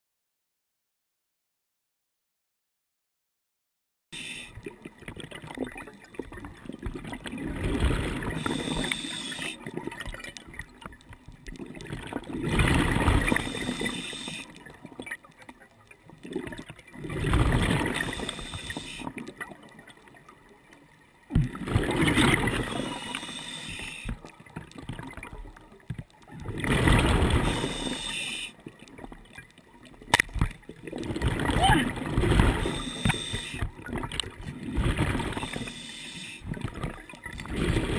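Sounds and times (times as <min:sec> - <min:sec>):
low underwater hiss: 0:04.2 - 0:05.0, 0:07.5 - 0:10.0, 0:12.2 - 0:14.9, 0:16.9 - 0:19.9, 0:20.7 - 0:24.7, 0:26.6 - 0:30.1, 0:31.9 - 0:37.9
underwater gurgling rush: 0:04.2 - 0:20.1, 0:21.2 - 0:37.9.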